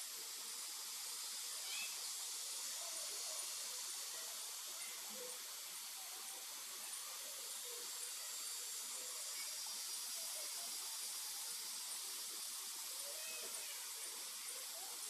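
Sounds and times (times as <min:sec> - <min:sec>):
high hiss: 0:00.0 - 0:15.0
faint distant calls: 0:01.5 - 0:09.6.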